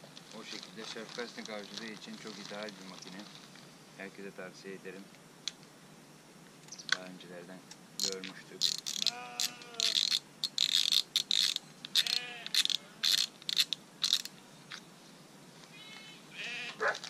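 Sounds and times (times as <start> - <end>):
fishing reel clicking and rattling: 8.0 - 14.3.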